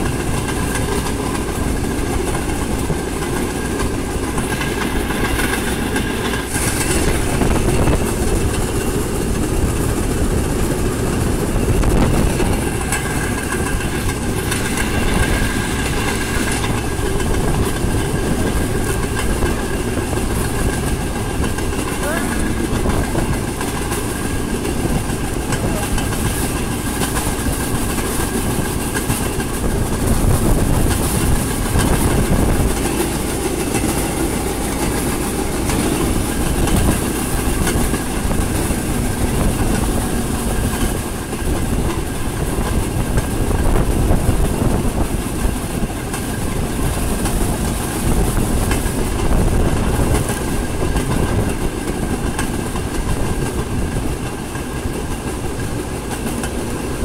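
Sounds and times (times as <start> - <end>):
clickety-clack over rail joints: 0.0 - 57.0
train wheels rumbling on rails: 0.0 - 57.0.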